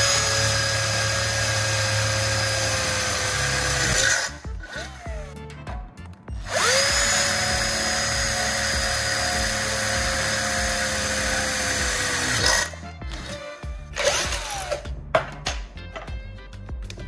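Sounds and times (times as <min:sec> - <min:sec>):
cordless drill boring through metal: 0:00.0 - 0:05.3, 0:06.4 - 0:14.8.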